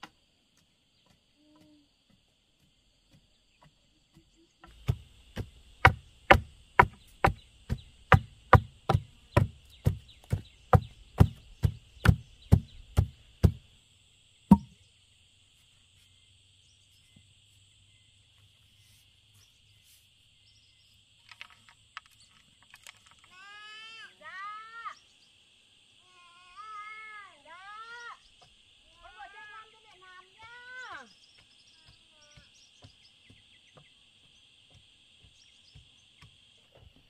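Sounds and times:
wooden pole knocking soil: 0.0s - 13.6s, 14.5s - 14.7s, 31.0s - 37.0s
insects chirring: 0.0s - 37.0s.

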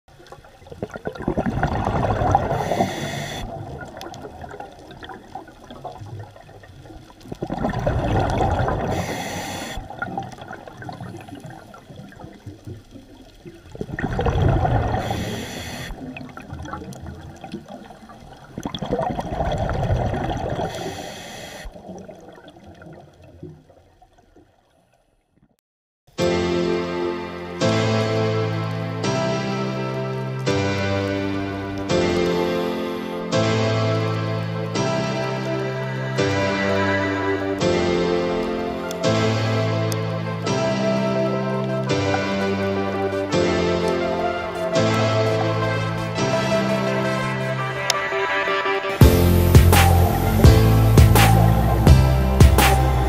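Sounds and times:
underwater bubbling: 0.1s - 25.5s, 27.2s - 48.4s, 49.0s - 53.0s
diver breathing through regulator: 1.8s - 3.8s, 8.2s - 10.0s, 14.6s - 16.1s, 20.6s - 21.9s
piano music: 26.2s - 53.0s.

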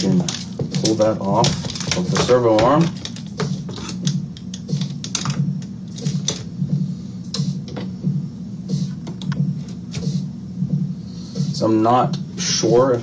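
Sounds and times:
small plastic parts clicking and rattling: 0.0s - 5.4s
low pulsing background music: 0.0s - 13.0s.

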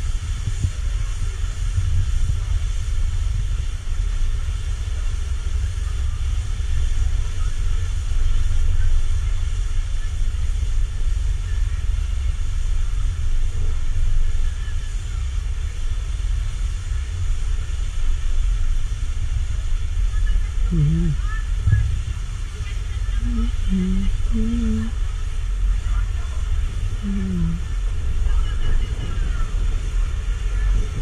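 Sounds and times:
wind buffeting microphone: 0.0s - 5.6s
faint steady hum: 0.0s - 31.0s.

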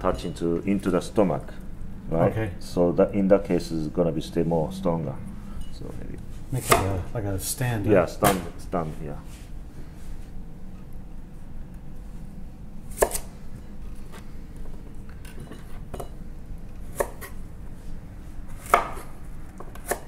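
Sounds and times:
knife chopping on wooden board: 6.6s - 7.0s, 12.9s - 13.3s, 16.9s - 17.4s, 18.6s - 20.0s.

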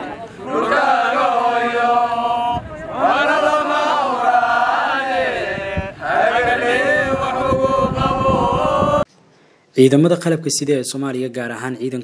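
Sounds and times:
soldiers chanting in unison: 0.4s - 9.0s.

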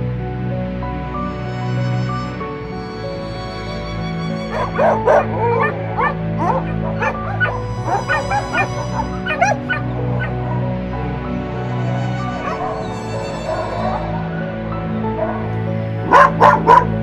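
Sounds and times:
soft background music: 0.0s - 17.0s
dogs yipping and whining: 4.5s - 10.7s, 12.1s - 14.3s, 16.1s - 17.0s.

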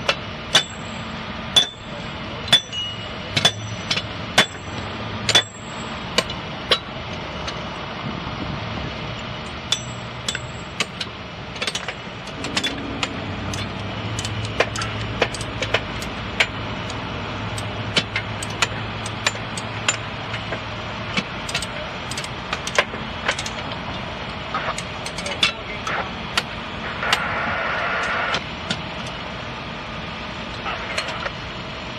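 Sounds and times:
hammers clanking on steel: 0.0s - 6.9s, 9.7s - 16.6s
low engine hum: 0.0s - 31.9s.

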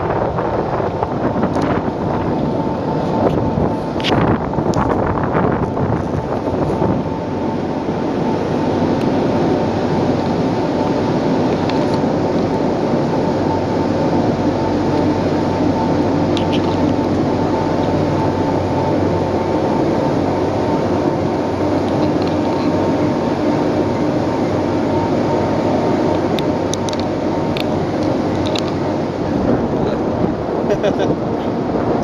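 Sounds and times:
boat engine droning: 0.0s - 32.0s.

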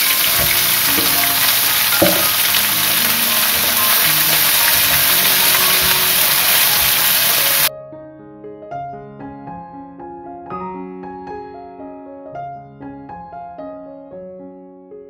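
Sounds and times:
oil sizzling in a pan: 0.0s - 7.7s
soft piano music: 0.0s - 15.0s
knock: 0.1s - 5.1s.

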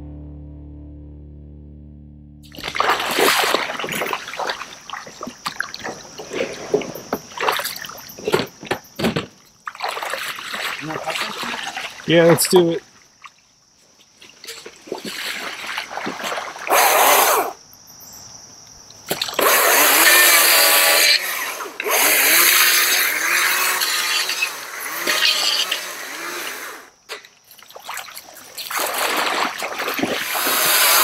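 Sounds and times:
chainsaw revving: 16.7s - 17.6s, 19.4s - 27.0s, 30.2s - 31.0s.

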